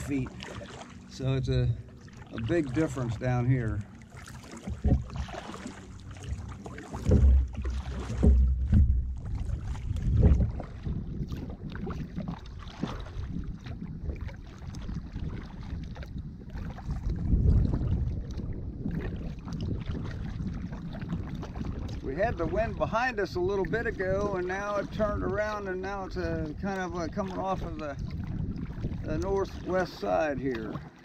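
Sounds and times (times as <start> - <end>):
wind buffeting microphone: 0.0 - 4.0, 4.6 - 30.9
paddle strokes splashing water: 0.0 - 31.0.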